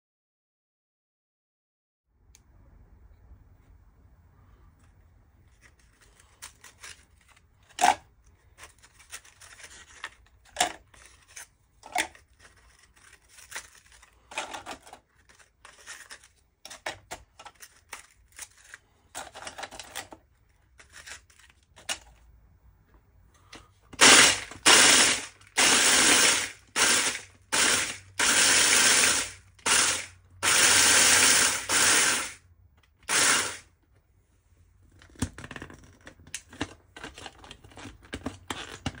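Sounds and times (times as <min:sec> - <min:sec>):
crackers rustling and clicking: 0:04.8 - 0:22.3, 0:34.8 - 0:39.0
electric food chopper pulsing: 0:24.0 - 0:32.4, 0:33.0 - 0:33.6.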